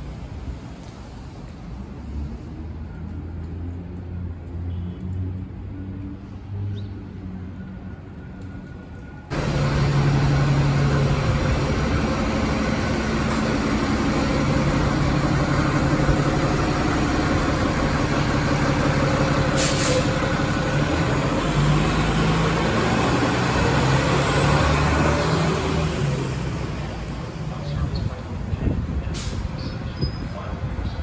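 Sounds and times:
bus diesel engine droning: 9.3s - 27.8s
compressed air hiss: 19.5s - 20.1s.

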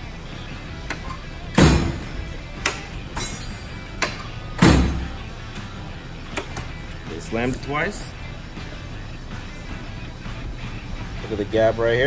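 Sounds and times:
wrenches clanking: 0.8s - 5.2s
tool chest drawer slamming shut: 1.6s - 2.2s, 4.6s - 5.2s.

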